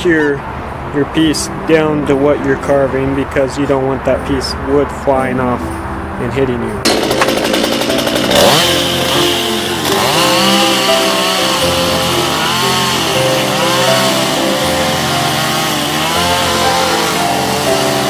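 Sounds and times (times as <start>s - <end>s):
chainsaw cutting wood: 6.9s - 18.0s.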